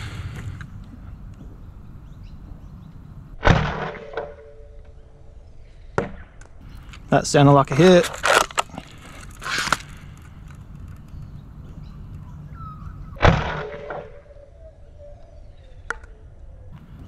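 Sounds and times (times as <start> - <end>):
foam-dart blaster firing crack: 3.4 - 4.4, 13.2 - 14.1.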